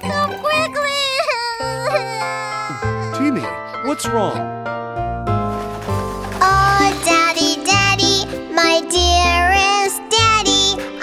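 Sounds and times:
person singing a melody: 0:06.4 - 0:11.0.

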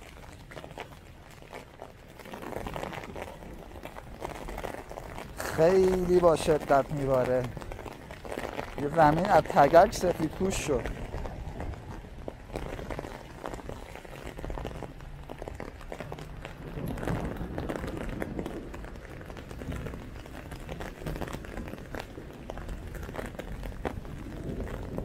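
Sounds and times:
hailstones ticking on ground: 0:00.0 - 0:25.0.

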